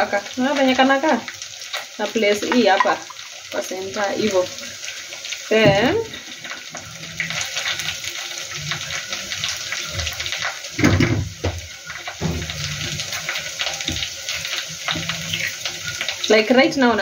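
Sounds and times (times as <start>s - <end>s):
tap water running in sink: 0.0s - 17.0s
clatter of vegetables and utensils: 9.7s - 15.7s.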